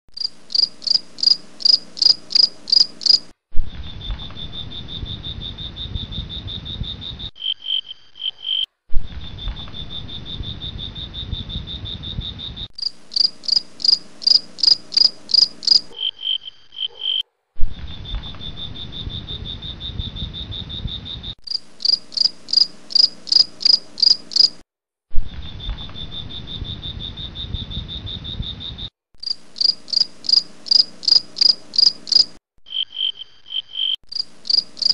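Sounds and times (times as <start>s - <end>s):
crickets chirping: 0.2s - 3.3s, 3.9s - 8.7s, 9.3s - 17.2s, 18.0s - 24.6s, 25.5s - 34.9s
high insect trill: 0.2s - 3.3s, 9.4s - 16.7s, 18.3s - 24.6s, 25.6s - 34.9s.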